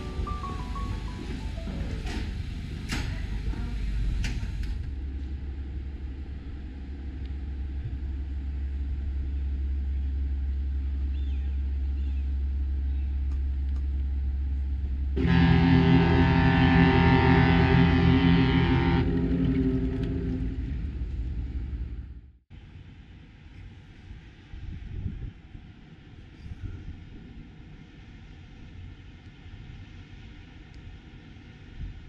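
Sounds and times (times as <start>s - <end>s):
steady low rumble: 0.0s - 32.0s.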